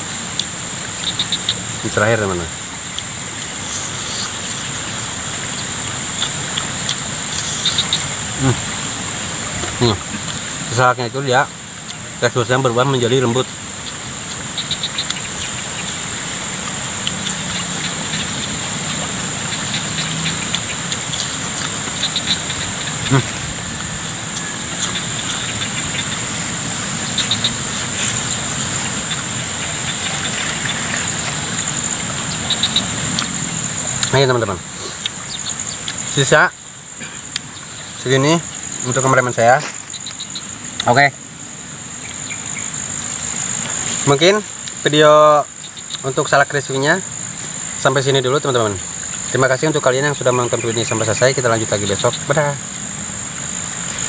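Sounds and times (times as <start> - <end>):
insect chorus chirring: 0.0 - 54.0
noisy background: 0.0 - 54.0
man chewing crispy food: 2.8 - 10.7, 13.8 - 36.2, 37.2 - 37.6.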